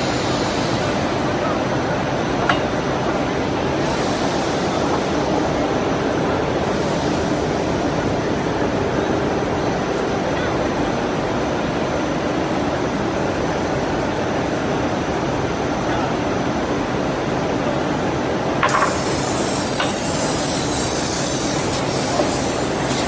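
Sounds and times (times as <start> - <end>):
air hiss: 18.6 - 23.0.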